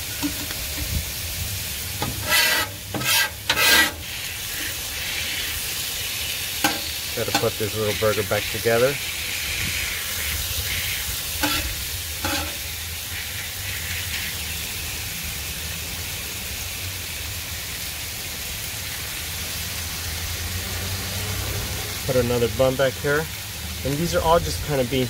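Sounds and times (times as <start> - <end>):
patties sizzling on a griddle: 0.0 - 25.0
spatula scraping griddle: 1.8 - 14.4.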